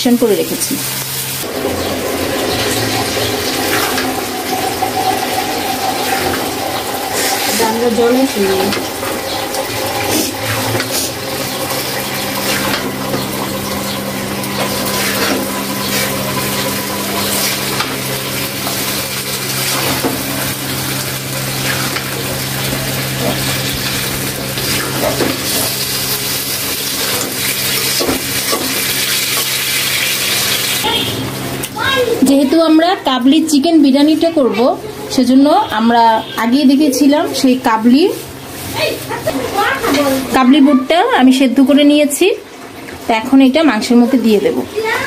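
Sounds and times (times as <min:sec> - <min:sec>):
low hum: 0:00.0 - 0:29.5
chicken sizzling in pan: 0:00.1 - 0:33.3, 0:34.8 - 0:45.0
metal spatula scraping pan: 0:14.5 - 0:16.6.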